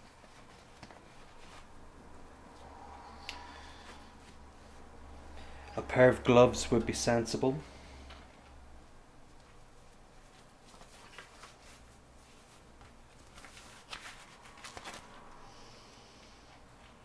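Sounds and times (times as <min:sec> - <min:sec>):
fabric glove rustling: 0:00.0 - 0:01.9, 0:09.5 - 0:15.4.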